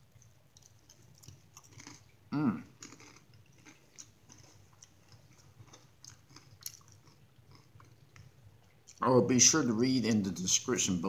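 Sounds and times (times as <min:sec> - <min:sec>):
person chewing: 0:00.0 - 0:09.0
person humming: 0:02.3 - 0:02.7.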